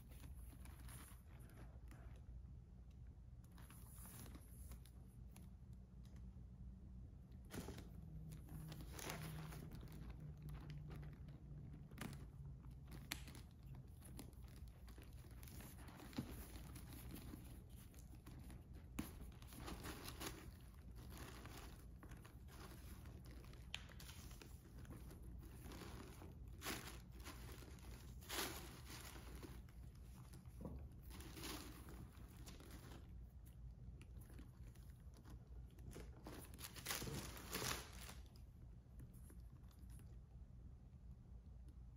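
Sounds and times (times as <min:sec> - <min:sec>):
low steady hum: 0:00.0 - 0:41.9
tissue paper rustling: 0:12.8 - 0:33.3, 0:35.2 - 0:38.4.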